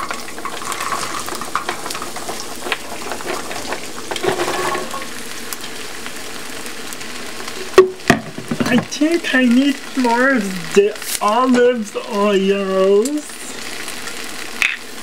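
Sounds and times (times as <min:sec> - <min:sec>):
vegetables tapping into pan: 0:00.0 - 0:05.7, 0:07.5 - 0:09.0, 0:14.6 - 0:15.0
vegetables sizzling in a pan: 0:00.0 - 0:15.0.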